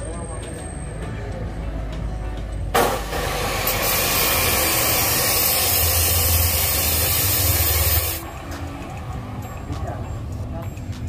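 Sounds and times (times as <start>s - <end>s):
cut-off saw whirring: 2.8s - 8.2s.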